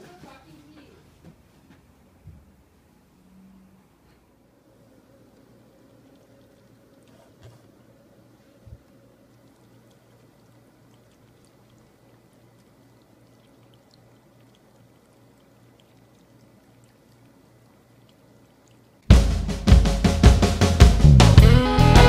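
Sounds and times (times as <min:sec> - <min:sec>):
low steady hum: 0:02.0 - 0:19.3
cats lapping water: 0:04.8 - 0:19.1
loud music with drums and guitar: 0:19.1 - 0:22.0.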